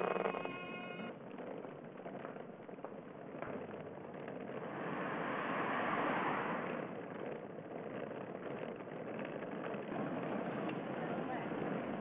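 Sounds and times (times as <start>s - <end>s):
steady rushing noise: 4.3s - 12.0s.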